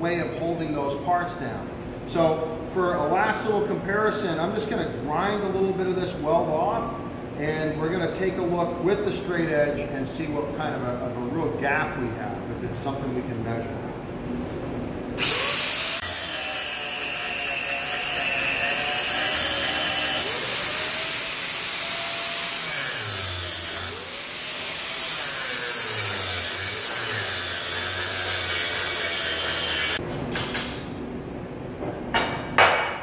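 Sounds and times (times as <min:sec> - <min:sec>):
angle grinder grinding metal: 0:15.2 - 0:30.0.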